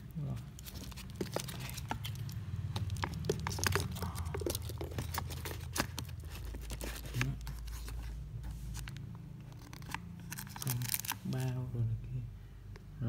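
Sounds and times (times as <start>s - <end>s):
low steady hum: 0.0s - 13.0s
watch bracelet crackling and clicking: 0.8s - 6.8s.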